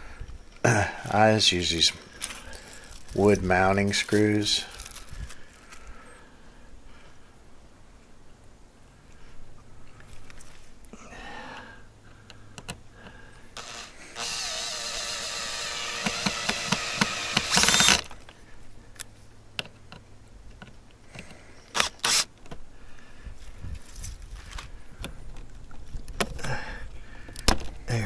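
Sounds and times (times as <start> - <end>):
cordless drill driving screws: 13.6 - 18.1, 21.7 - 22.3.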